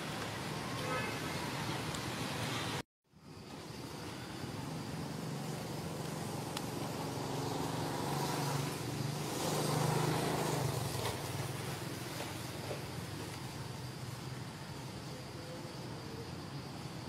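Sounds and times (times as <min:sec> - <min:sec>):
outdoor background noise: 0:00.0 - 0:17.0
vehicle engine humming: 0:03.4 - 0:14.5.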